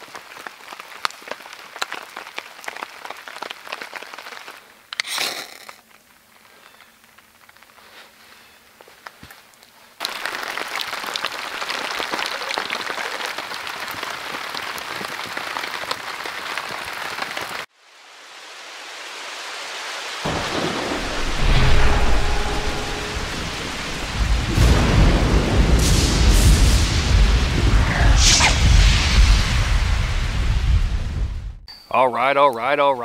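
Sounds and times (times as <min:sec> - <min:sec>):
heavy rain falling: 0:00.0 - 0:04.7, 0:10.0 - 0:31.4
rolling thunder: 0:20.3 - 0:31.6.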